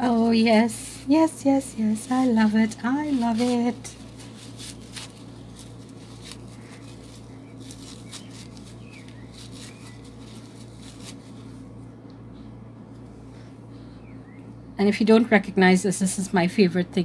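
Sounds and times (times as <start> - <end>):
steady low hum: 0.0 - 17.0
tissue paper rustling and crinkling: 1.2 - 11.6.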